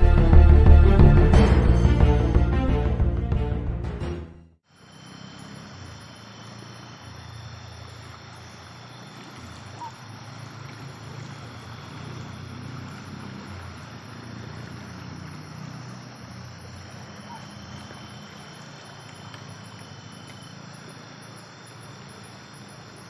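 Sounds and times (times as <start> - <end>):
night insects trilling: 4.6 - 23.0.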